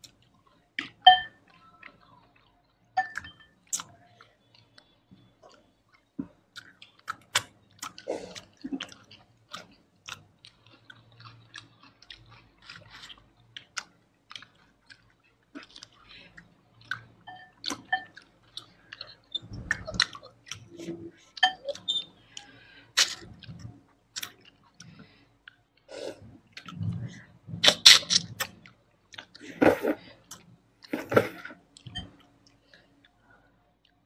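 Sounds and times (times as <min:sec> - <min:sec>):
chewing and biting food: 0:00.0 - 0:25.9.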